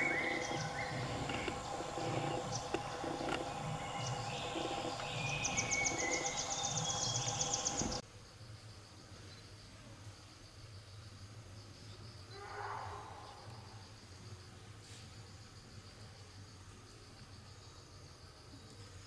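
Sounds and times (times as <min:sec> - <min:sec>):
bird chirps: 0:00.0 - 0:08.0
steady forest drone: 0:00.0 - 0:19.0.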